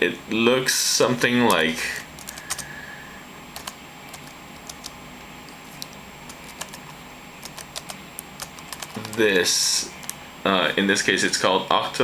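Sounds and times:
keyboard key clicks: 5.8 - 9.2.

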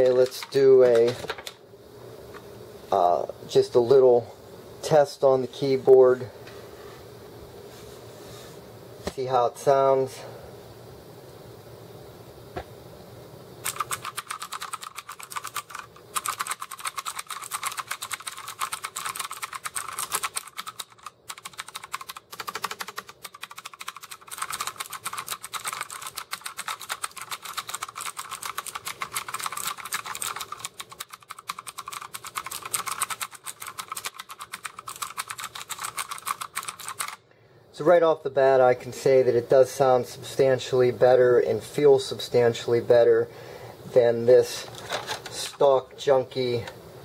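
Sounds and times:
mechanical keyboard typing: 0.0 - 1.6, 13.6 - 37.2.

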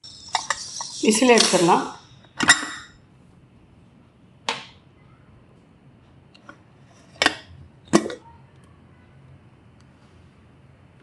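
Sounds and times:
steam hissing from pressure cooker: 0.0 - 2.8.

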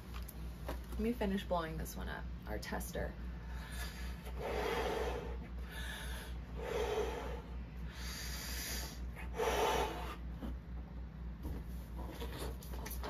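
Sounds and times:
breathy blowing into balloon: 3.5 - 10.2.

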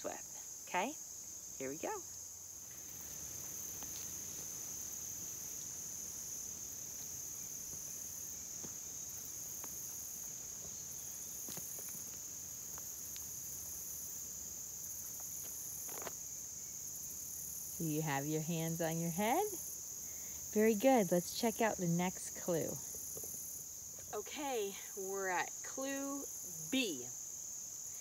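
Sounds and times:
insects chorus: 0.0 - 28.0
rustling through undergrowth: 2.5 - 17.5
footsteps: 8.5 - 13.3.

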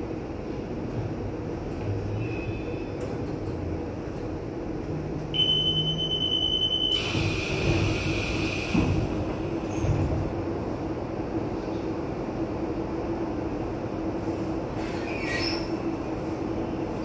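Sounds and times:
train low hum: 0.0 - 17.0
door warning beep: 5.4 - 7.6
train door sliding shut: 6.8 - 10.5.

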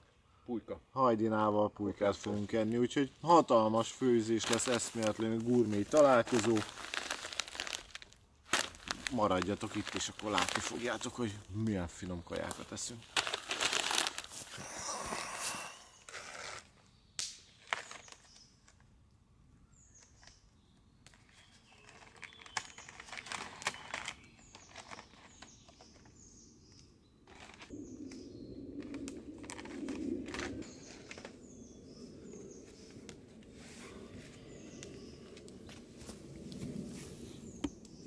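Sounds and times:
people rustling and handling things: 4.1 - 16.6, 21.1 - 26.1, 28.8 - 31.4
small bird chirping: 19.6 - 28.6.

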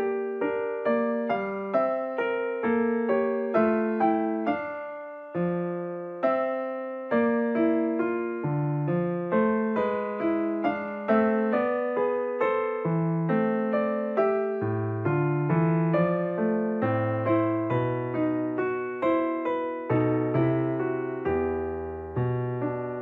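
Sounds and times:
gentle piano melody: 0.0 - 23.0.

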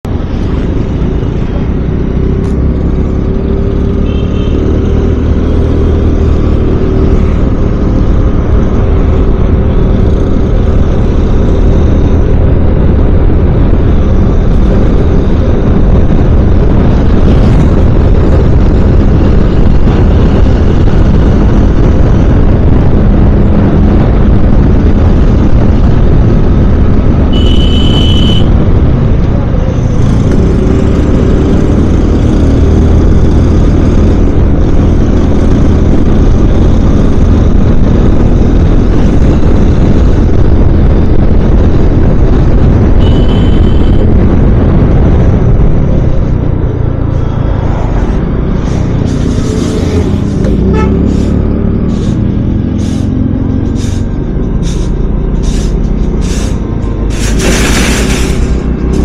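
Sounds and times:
motorcycle engine: 0.0 - 59.0
wind rush on microphone: 5.2 - 59.0.

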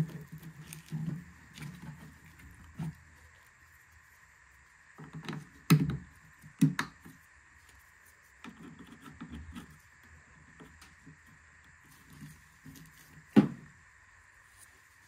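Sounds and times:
knocking and handling noise: 12.0 - 13.8.

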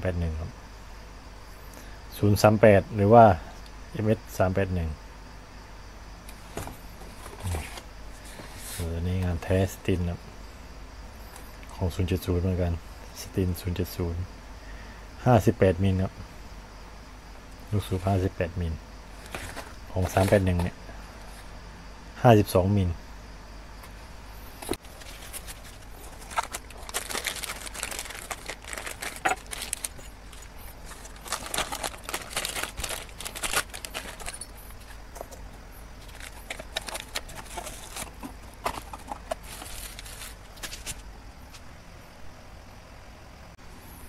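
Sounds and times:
faint low hum: 0.0 - 44.0
plastic bags crinkling: 24.8 - 41.0.

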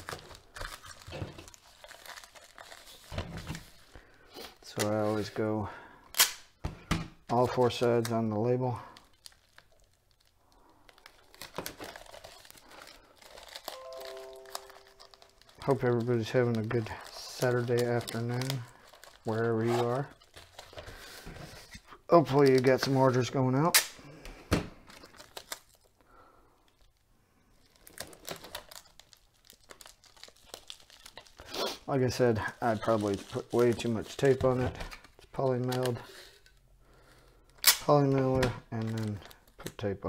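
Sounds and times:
packing tape clicks and crackles: 0.0 - 4.0, 7.5 - 21.7, 24.9 - 26.0, 27.6 - 39.9
plastic mailer crinkling: 0.0 - 4.0, 7.4 - 23.4, 24.9 - 26.0, 27.6 - 40.0.

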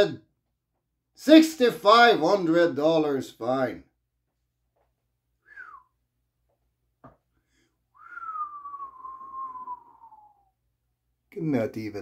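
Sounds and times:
man whistling: 5.4 - 6.0, 7.9 - 10.6.

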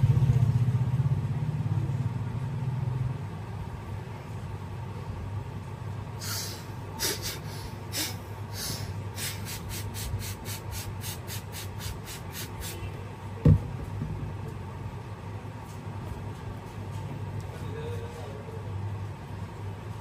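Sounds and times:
dull thump: 13.4 - 14.3.

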